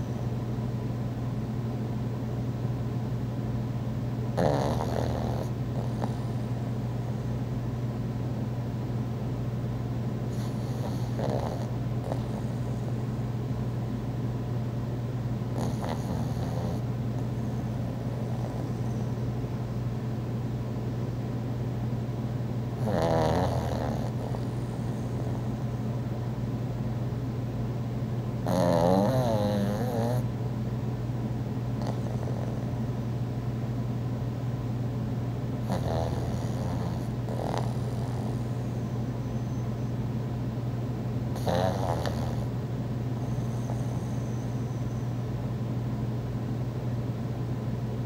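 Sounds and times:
dog snoring: 0:04.3 - 0:06.7, 0:10.3 - 0:13.0, 0:15.5 - 0:19.2, 0:22.7 - 0:25.8, 0:28.4 - 0:30.3, 0:31.8 - 0:32.8, 0:35.6 - 0:39.7, 0:41.3 - 0:42.6, 0:43.2 - 0:45.1.

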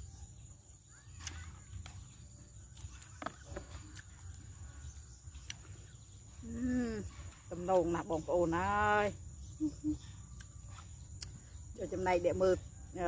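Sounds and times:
chewing: 0:01.1 - 0:06.4.

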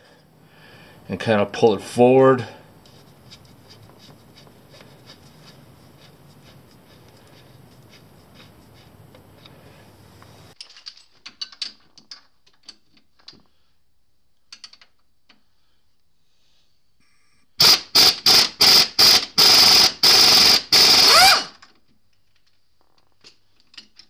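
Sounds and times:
faint steady hiss: 0:05.3 - 0:10.6.

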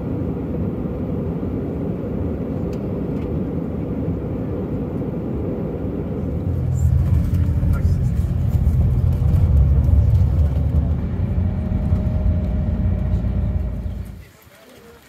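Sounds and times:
airliner cabin rumble: 0:00.0 - 0:14.3
deep loud drone: 0:04.0 - 0:14.2.

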